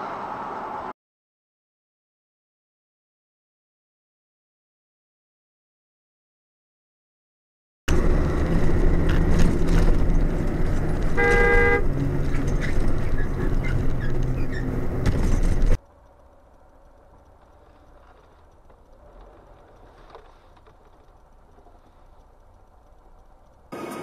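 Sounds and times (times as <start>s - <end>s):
vehicle engine and road noise: 0.0s - 1.0s, 7.9s - 24.0s
car horn blast: 11.1s - 11.9s.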